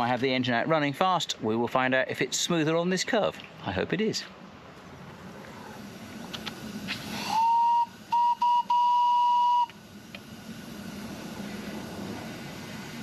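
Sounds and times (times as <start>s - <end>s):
locomotive running noise: 0.0s - 13.0s
steam locomotive whistle toots: 7.1s - 9.8s.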